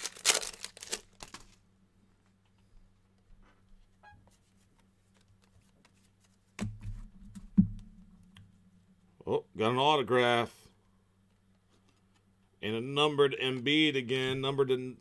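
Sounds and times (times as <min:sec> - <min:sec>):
trading cards flicking and rustling: 0:00.0 - 0:01.6, 0:04.3 - 0:07.0
steady low hum: 0:01.6 - 0:15.0.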